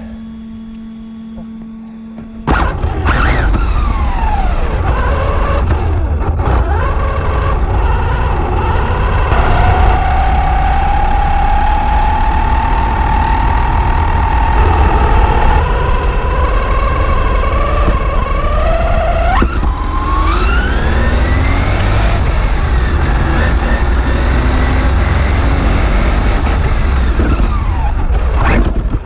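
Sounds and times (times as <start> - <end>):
faint steady hum: 0.0 - 6.2
electric motor whine: 0.0 - 29.0
tyre and road rumble: 1.3 - 29.0.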